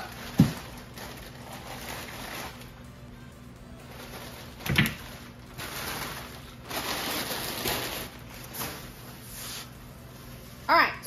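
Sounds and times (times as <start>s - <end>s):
plastic packaging crinkling: 0.0s - 2.8s, 3.9s - 9.1s.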